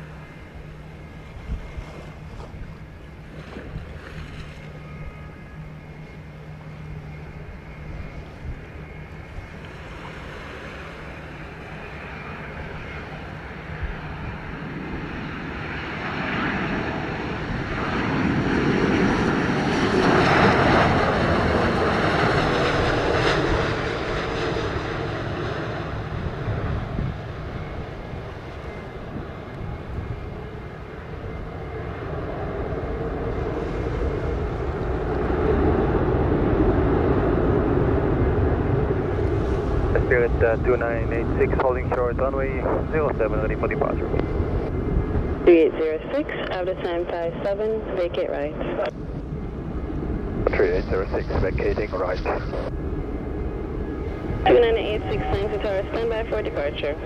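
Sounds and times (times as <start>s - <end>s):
jet engines passing overhead: 0.0s - 57.0s.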